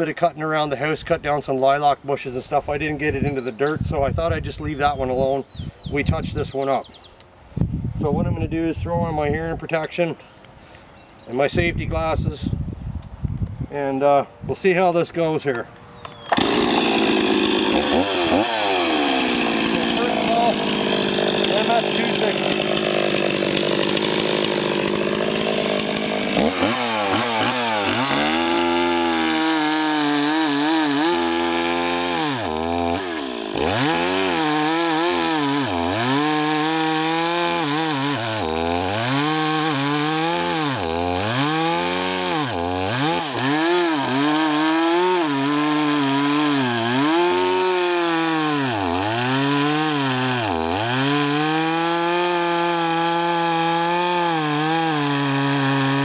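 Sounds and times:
chainsaw cutting log: 0:16.1 - 0:56.0.

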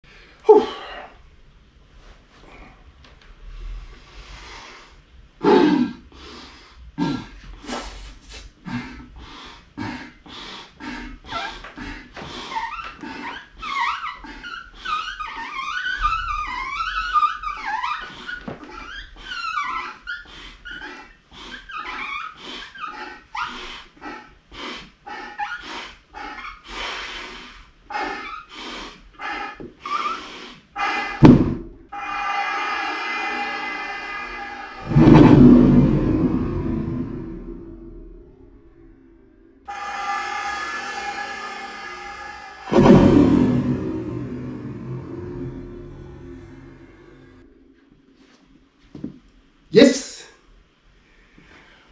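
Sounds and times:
man blowing breaths into rubber bottle: 0:03.4 - 0:16.3, 0:18.0 - 0:31.2
squeaky rubber and escaping air: 0:12.4 - 0:23.6, 0:29.2 - 0:33.4
loud thump: 0:31.2 - 0:31.8, 0:34.8 - 0:36.6, 0:42.7 - 0:46.8.

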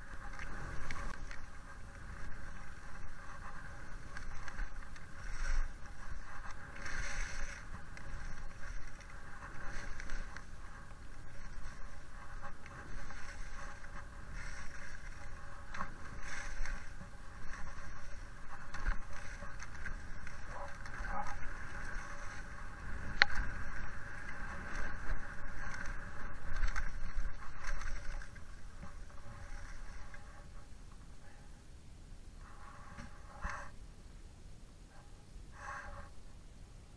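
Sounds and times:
skis scraping on snow: 0:00.0 - 0:30.7
wind on microphone: 0:00.0 - 0:34.0.

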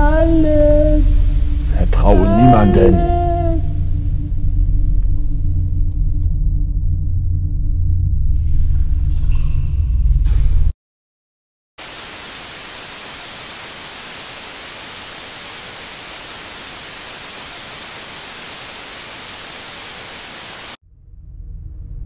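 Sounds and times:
static hiss: 0:00.0 - 0:04.2, 0:11.8 - 0:20.8
low rumble: 0:03.0 - 0:10.5, 0:20.8 - 0:22.0.

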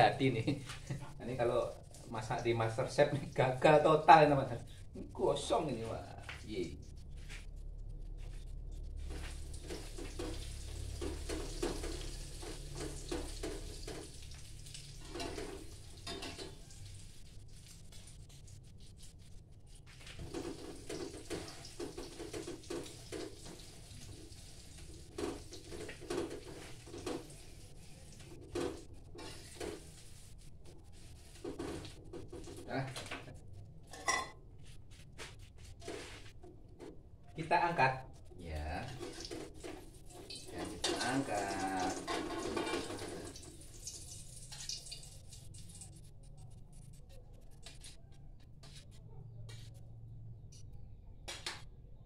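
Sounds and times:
omelette frying in oil: 0:00.0 - 0:34.0, 0:37.4 - 0:47.0
spatula scraping in a wok: 0:06.4 - 0:32.7, 0:38.8 - 0:43.4.

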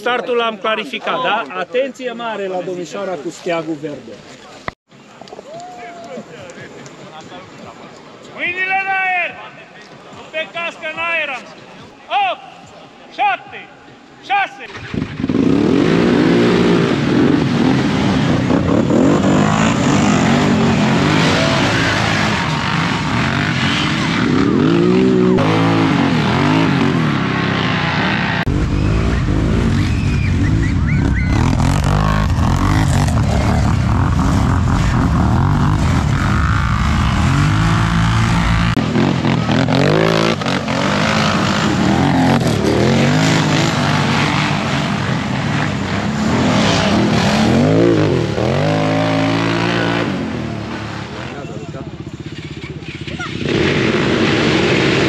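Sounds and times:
atv engines revving: 0:14.0 - 0:55.0.

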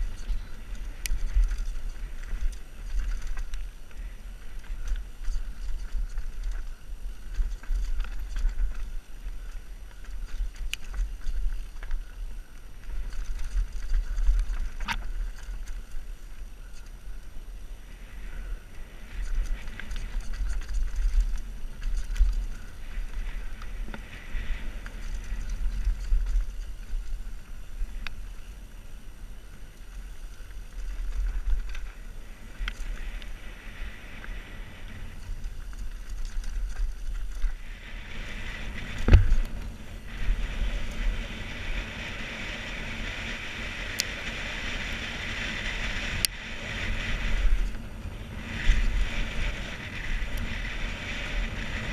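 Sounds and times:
bike parts rattling and clicking: 0:00.0 - 0:17.0, 0:19.0 - 0:28.3, 0:35.1 - 0:37.6
bike tyres on dirt: 0:00.0 - 0:51.9
wind rumbling on microphone: 0:00.0 - 0:51.9.

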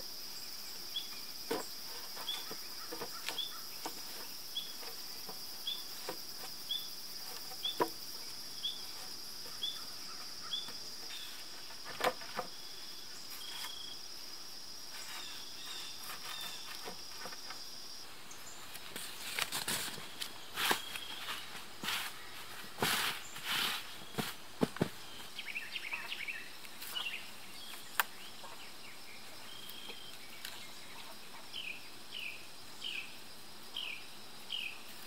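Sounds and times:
high insect drone: 0:00.0 - 0:35.0
wooden poles knocking: 0:01.5 - 0:06.6, 0:07.2 - 0:08.2.

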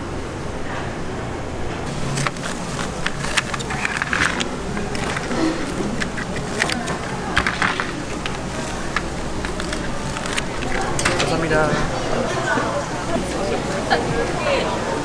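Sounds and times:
busy market background noise: 0:00.0 - 0:15.0
scissors cutting bread: 0:02.0 - 0:11.2
spatula clicking on wire rack: 0:02.1 - 0:11.4.

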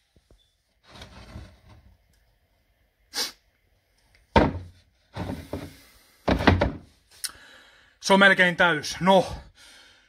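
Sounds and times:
brief hiss: 0:03.1 - 0:03.4.

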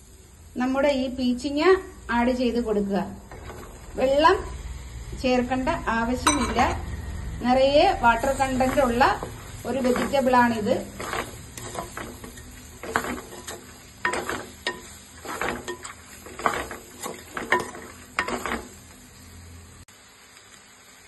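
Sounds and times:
oil sizzling: 0:00.0 - 0:21.0
wooden spatula scraping clay pot: 0:03.3 - 0:04.0, 0:08.2 - 0:18.8.

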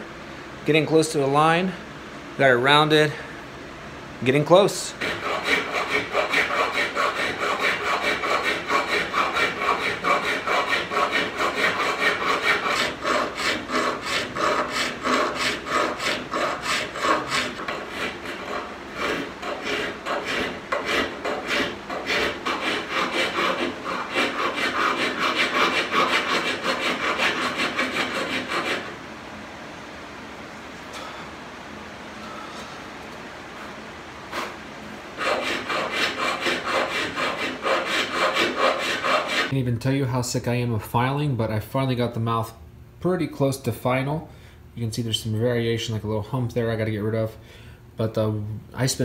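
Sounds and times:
file rasping on steel: 0:04.9 - 0:29.0, 0:35.2 - 0:39.5.

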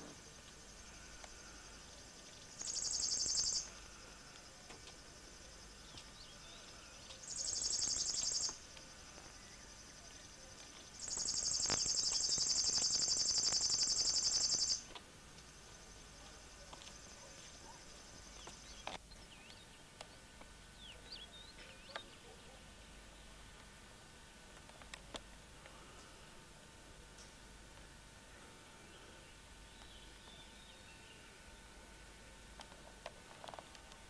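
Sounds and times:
faint bird chirps: 0:00.0 - 0:08.6, 0:09.2 - 0:14.8
bird's pulsed high buzzing song: 0:00.0 - 0:34.0.

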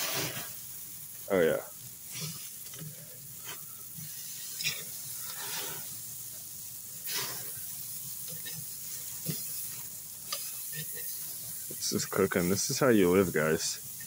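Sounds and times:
steaks sizzling on a grill: 0:00.0 - 0:14.0
metal tongs clacking and scraping: 0:08.2 - 0:11.2.

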